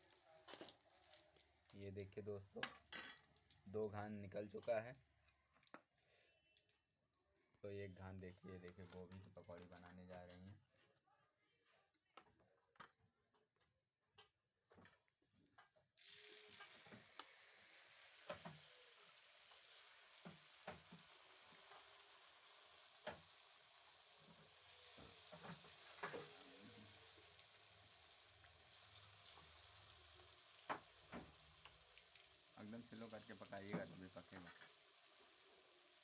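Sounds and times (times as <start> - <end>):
food sizzling in hot oil: 0.0 - 1.8, 16.0 - 36.0.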